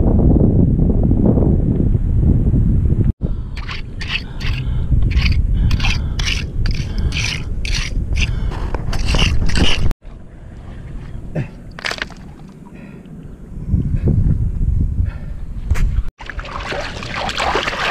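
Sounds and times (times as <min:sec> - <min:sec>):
wind rumbling on microphone: 0:00.0 - 0:17.9
hand tool scraping through sand: 0:03.6 - 0:09.9.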